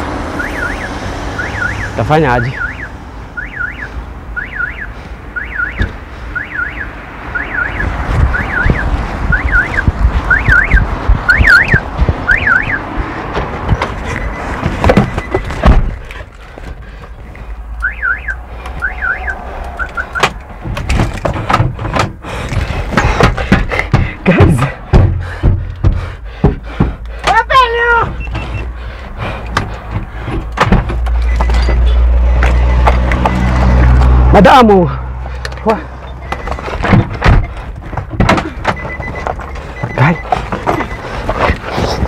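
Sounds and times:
passing road traffic: 0.0s - 42.0s
car alarm warbling: 0.3s - 12.9s, 17.8s - 20.4s, 31.1s - 33.9s, 35.9s - 37.6s, 38.4s - 41.6s
sharp knocks: 20.1s - 27.4s, 29.5s - 31.8s, 36.3s - 39.2s.

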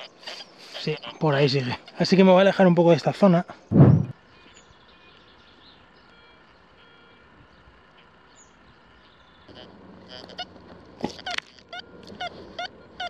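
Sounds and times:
low steady hum: 0.1s - 13.0s
bird chirps: 4.1s - 13.0s.

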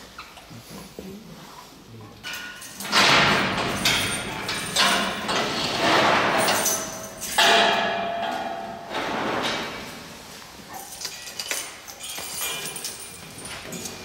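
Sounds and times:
metal cage door scraping: 2.4s - 10.3s.

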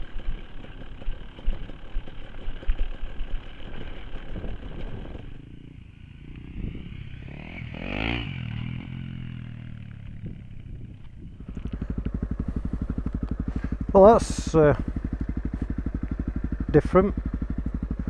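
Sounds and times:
motorbike engine: 0.0s - 18.0s.

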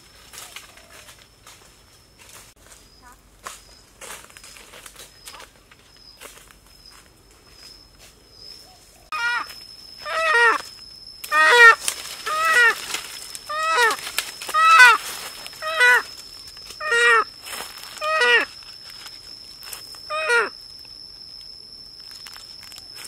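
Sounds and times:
animal calling: 8.7s - 10.7s, 11.3s - 17.4s, 18.0s - 18.6s, 20.1s - 20.6s.

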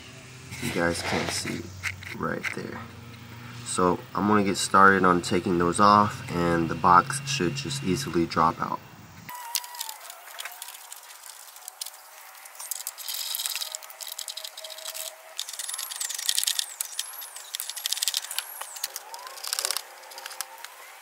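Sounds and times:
high falling whistle: 9.3s - 10.6s
plastic clicking and rattling: 12.6s - 20.8s.

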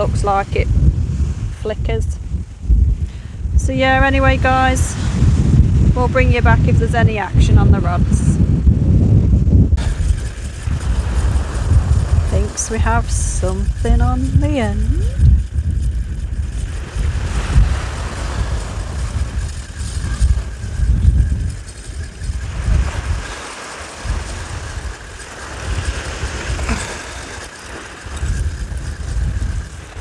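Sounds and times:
wind buffeting microphone: 0.0s - 30.0s
sea hiss: 21.6s - 30.0s.

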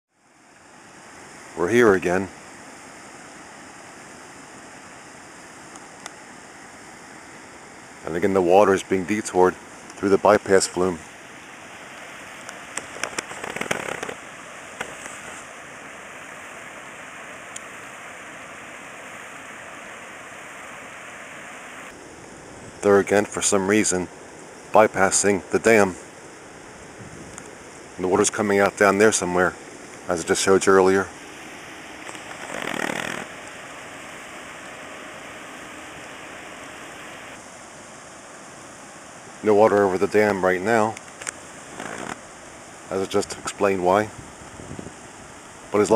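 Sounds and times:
sharp crackling clicks: 12.0s - 14.2s, 14.8s - 15.2s, 32.0s - 33.6s, 40.9s - 42.2s.

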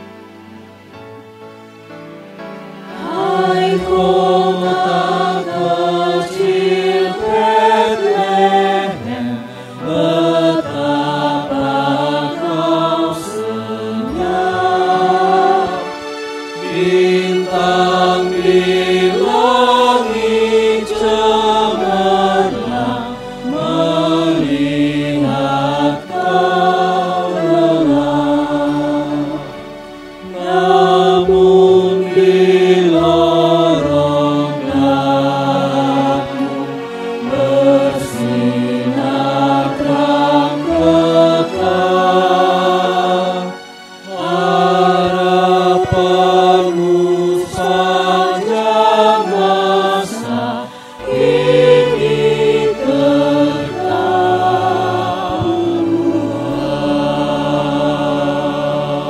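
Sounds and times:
mixed choir singing in harmony: 0.0s - 59.0s
singers breathing: 50.6s - 51.1s.

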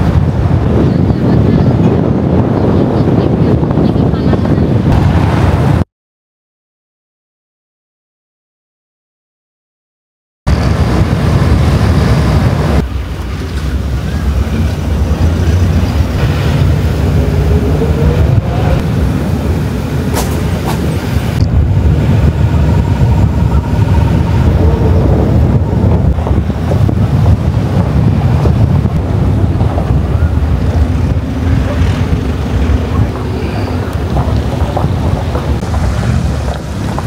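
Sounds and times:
wind buffeting microphone: 0.0s - 5.8s, 10.5s - 37.0s.

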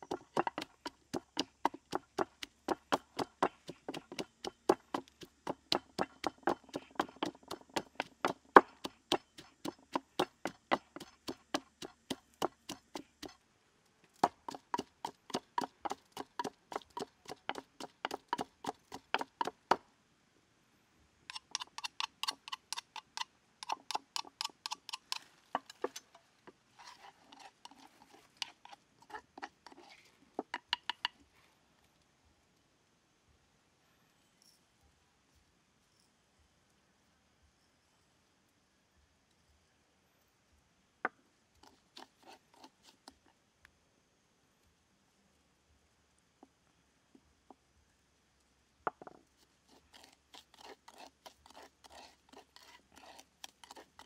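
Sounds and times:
pestle pounding in wooden mortar: 0.0s - 13.4s, 14.2s - 19.8s, 21.3s - 26.0s, 30.4s - 31.2s, 49.7s - 54.0s
spoon tapping paste: 0.0s - 13.4s, 14.2s - 19.8s, 21.3s - 26.0s, 27.3s - 31.2s, 49.9s - 54.0s.

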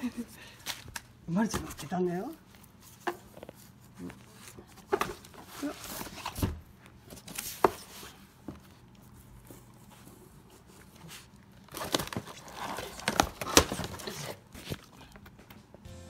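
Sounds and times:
packaging crinkling: 11.4s - 15.2s
cardboard tearing: 11.6s - 14.9s.

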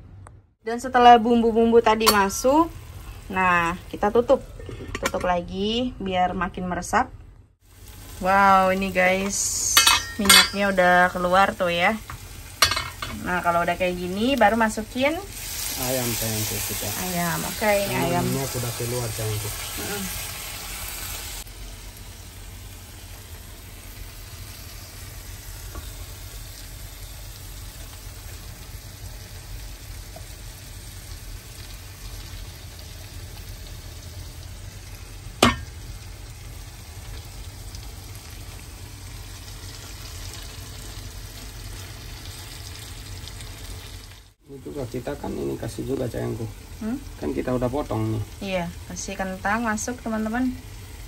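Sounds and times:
chicken sizzling in a pan: 7.6s - 51.0s.

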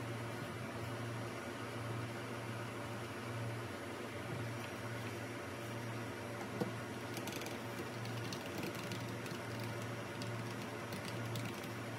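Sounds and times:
steady low hum: 0.0s - 11.9s
keyboard keys clicking: 7.2s - 11.8s.

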